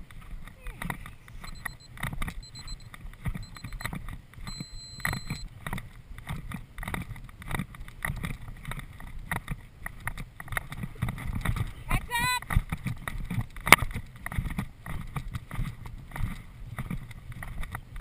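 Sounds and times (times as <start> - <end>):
horse hoofbeats on grass: 0.0 - 18.0
wind rush on microphone: 0.0 - 18.0
electronic beeps: 1.4 - 5.5.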